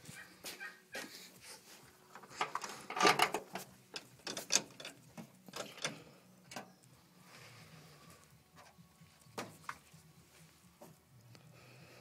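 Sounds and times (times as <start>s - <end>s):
tractor controls clicking: 2.4s - 6.7s.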